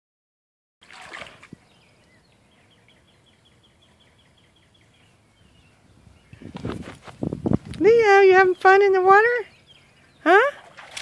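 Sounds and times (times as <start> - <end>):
noisy rustle: 6.3 - 8.0.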